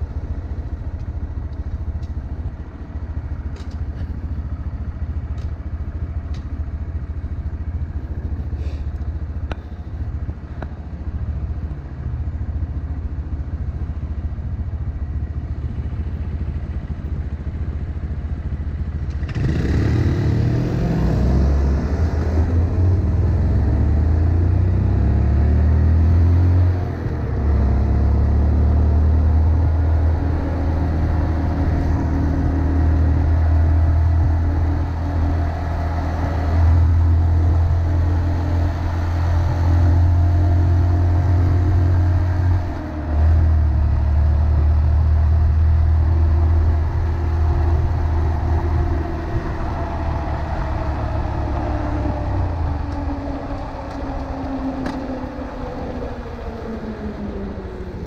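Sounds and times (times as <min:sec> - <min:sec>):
motorcycle engine: 0:00.0 - 0:58.0
wind noise: 0:29.4 - 0:58.0.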